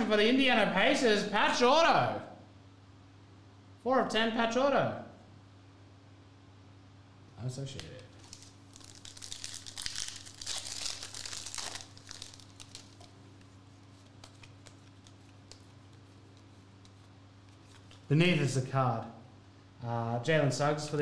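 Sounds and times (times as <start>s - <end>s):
foil wrapper crinkling: 7.8s - 18.1s
cards clicking: 14.2s - 18.1s.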